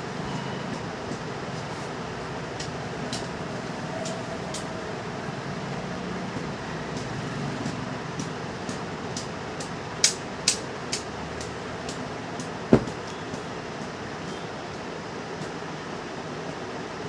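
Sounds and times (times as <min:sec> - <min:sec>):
background hum and hiss: 0:00.0 - 0:17.0
cloth rustles and taps: 0:12.4 - 0:13.0.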